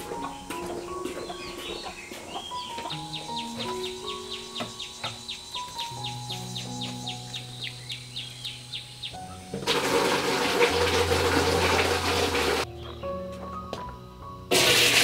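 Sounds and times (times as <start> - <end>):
high chirps: 0.0 - 9.7
background music: 0.0 - 15.0
tap water pouring into basin: 9.6 - 12.6, 14.5 - 15.0.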